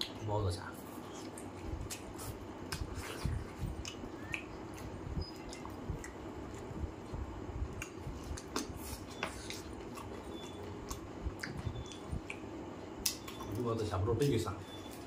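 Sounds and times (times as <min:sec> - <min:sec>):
person chewing with lip smacks: 0:01.0 - 0:13.6
fingers squelching saucy food: 0:01.0 - 0:15.0
sharp smacking clicks: 0:10.9 - 0:13.6.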